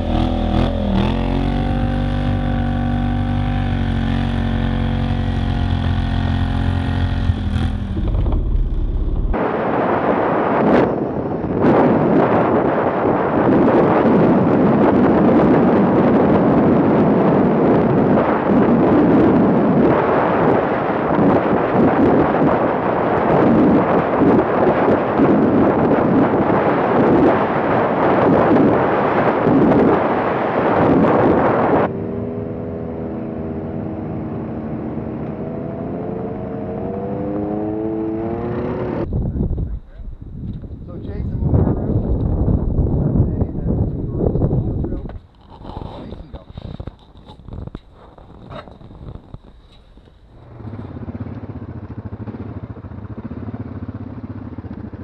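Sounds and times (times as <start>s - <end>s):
atv engine: 0.0s - 9.4s, 19.8s - 39.1s, 46.8s - 55.0s
wind buffeting microphone: 0.0s - 55.0s.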